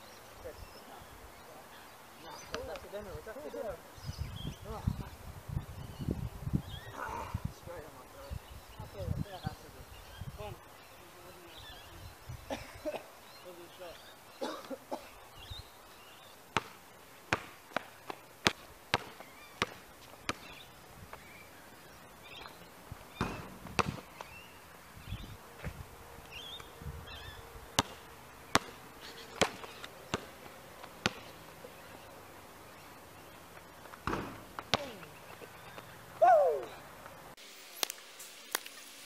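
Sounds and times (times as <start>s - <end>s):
basketball bouncing on asphalt: 16.2s - 21.3s, 22.3s - 24.5s, 26.5s - 36.2s.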